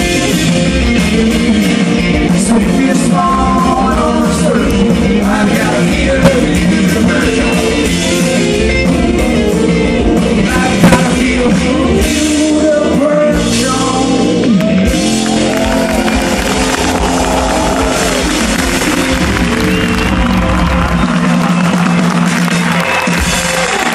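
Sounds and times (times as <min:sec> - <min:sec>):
live rock band playing: 0:00.0 - 0:23.9
man singing: 0:01.0 - 0:08.4, 0:10.2 - 0:14.6.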